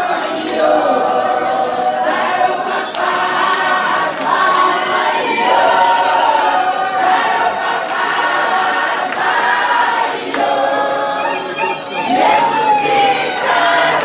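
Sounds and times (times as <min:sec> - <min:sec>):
congregation singing: 0:00.0 - 0:14.0.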